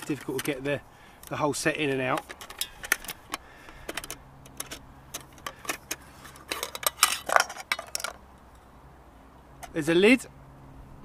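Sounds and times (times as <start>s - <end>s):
metal clinks and taps: 2.1s - 8.2s.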